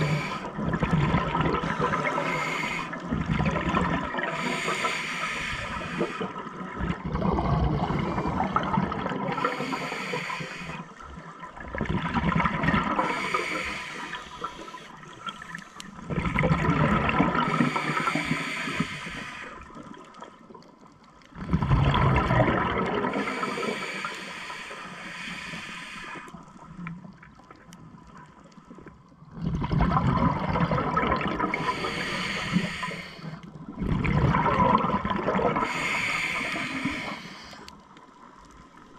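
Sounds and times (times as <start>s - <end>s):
diver exhaling bubbles underwater: 0.0s - 10.4s, 11.2s - 19.4s, 21.4s - 24.0s, 29.3s - 37.7s.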